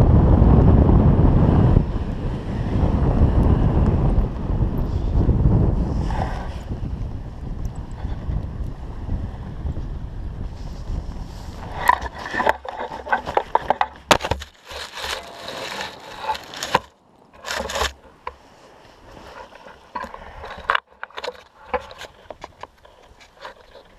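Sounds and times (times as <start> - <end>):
harness rustling: 10.5 - 23.9
carabiners knocking and clicking: 11.8 - 18.1.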